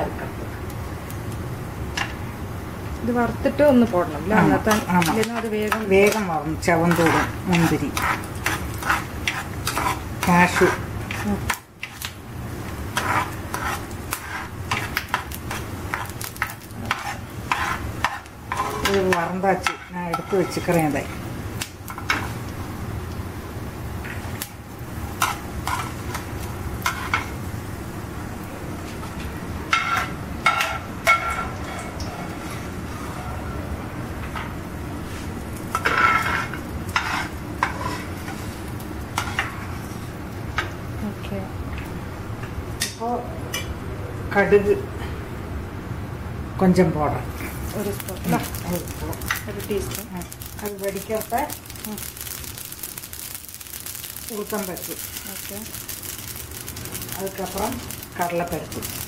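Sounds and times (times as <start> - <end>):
nuts sizzling in oil: 0.5 - 33.0, 34.1 - 41.9, 47.2 - 59.0
spatula scraping frying pan: 4.3 - 12.1, 12.7 - 21.2, 25.2 - 27.4, 35.1 - 38.6, 39.2 - 40.1.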